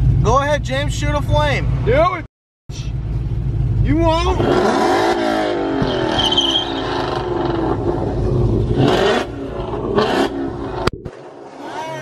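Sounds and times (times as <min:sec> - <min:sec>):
car engine revving: 0:03.8 - 0:12.0.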